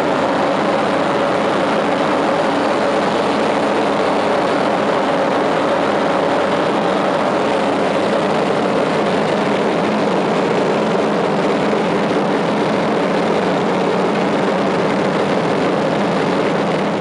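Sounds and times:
propeller aircraft engine drone: 0.0s - 17.0s
rushing air: 0.0s - 17.0s.

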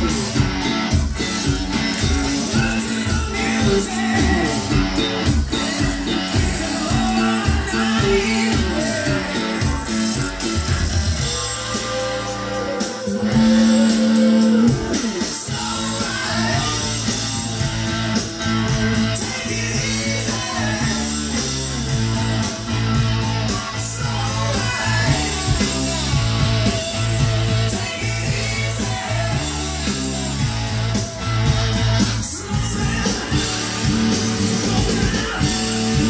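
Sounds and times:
rock music with guitar: 0.0s - 36.0s.

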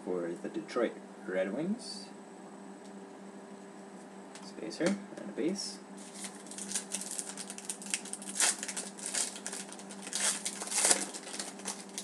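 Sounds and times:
foil wrapper crinkling and tearing: 6.0s - 12.0s.

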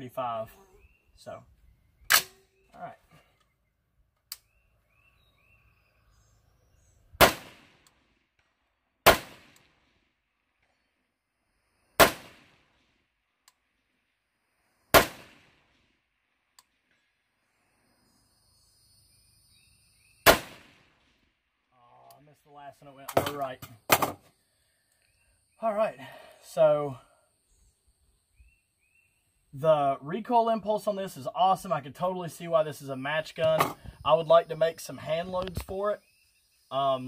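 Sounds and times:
rifle shots: 7.2s - 7.8s, 9.0s - 9.8s, 12.0s - 12.6s, 14.9s - 15.6s, 20.2s - 20.9s.

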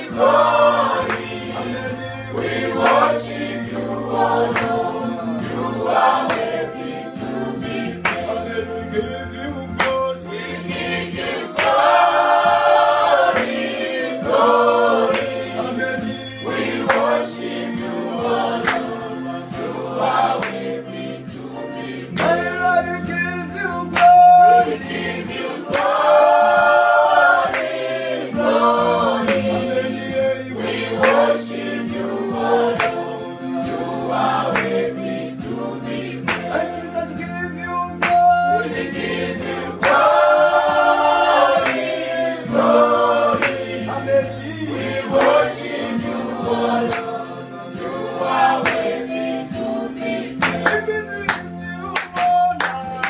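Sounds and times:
hand clapping: 0.0s - 5.0s, 6.1s - 6.9s, 7.9s - 8.5s, 9.6s - 10.4s, 11.2s - 17.6s, 18.6s - 19.2s, 20.0s - 20.8s, 22.1s - 31.8s, 32.7s - 33.5s, 34.2s - 35.2s, 36.2s - 45.8s, 46.4s - 47.3s, 48.2s - 49.7s, 50.3s - 53.0s
group singing gospel song: 0.0s - 53.0s.

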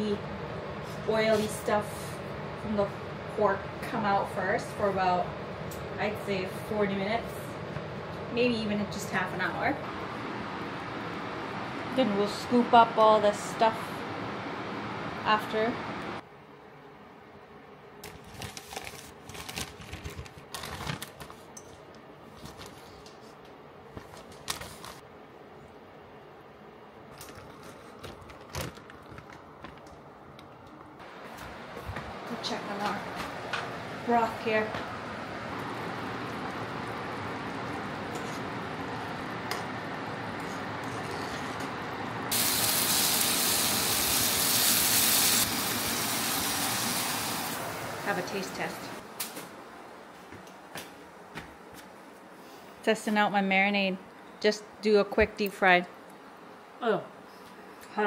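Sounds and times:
plastic bag rustling and crinkling: 18.0s - 21.5s
meat sizzling in a frying pan: 42.3s - 47.6s.

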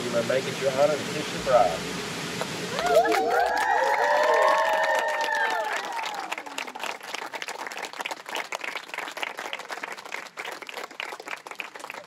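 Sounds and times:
crowd applauding: 2.7s - 12.0s.

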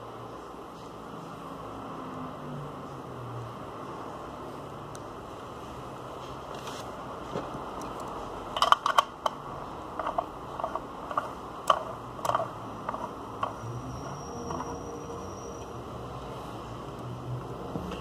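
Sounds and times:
small metal parts clicking: 7.8s - 13.8s.

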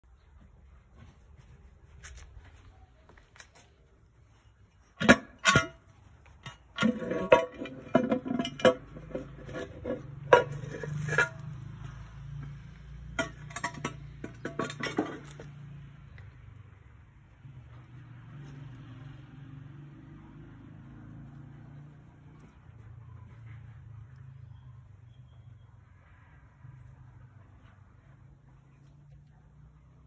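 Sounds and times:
metal engine parts clanking: 4.9s - 15.9s.

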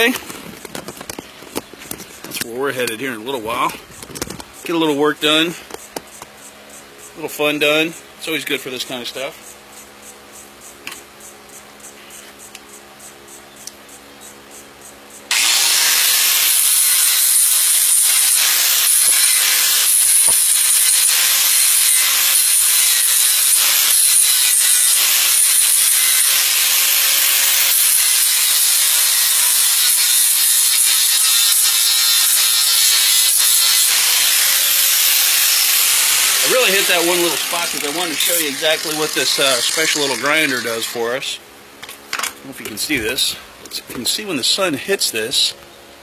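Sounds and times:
handheld grinder on metal: 15.3s - 41.3s.

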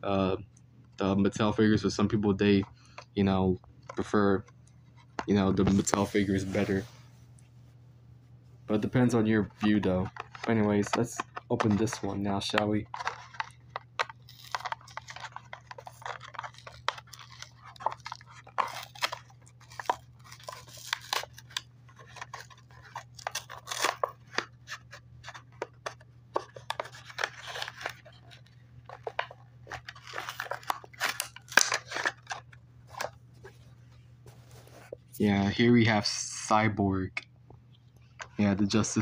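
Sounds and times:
faint low hum: 0.0s - 39.0s
plastic packaging crinkling and tearing: 8.7s - 33.6s.

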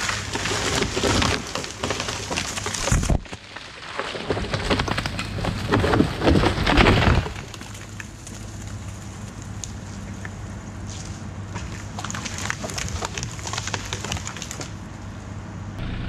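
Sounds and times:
tree cracking and crashing down: 0.0s - 10.0s, 11.5s - 14.8s
mini excavator engine running: 7.4s - 16.0s.

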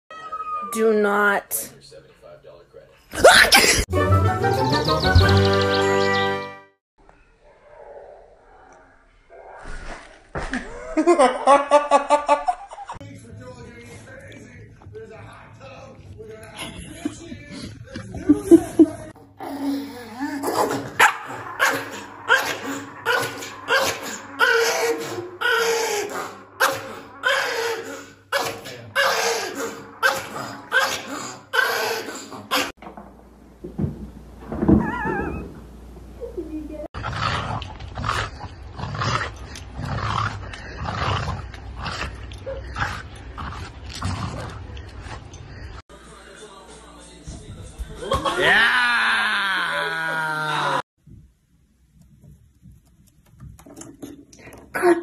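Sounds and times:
dog barking: 21.0s - 23.9s.

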